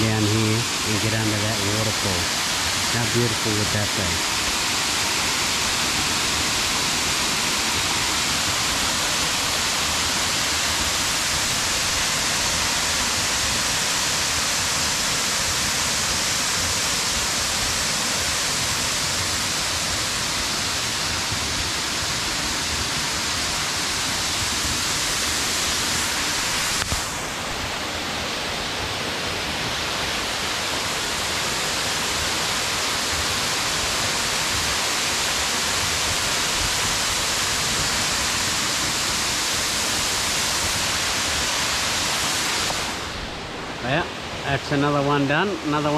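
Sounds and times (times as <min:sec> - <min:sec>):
waterfall rushing: 0:00.0 - 0:45.9.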